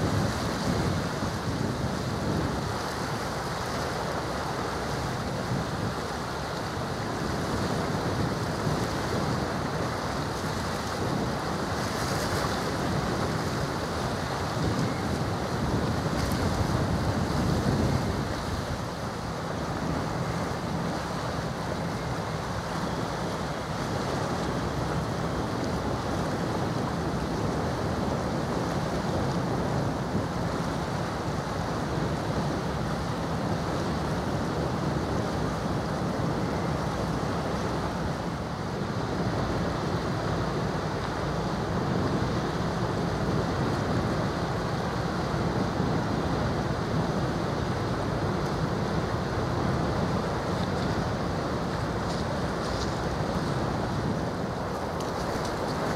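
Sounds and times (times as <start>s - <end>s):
wind on microphone: 0.0s - 55.9s.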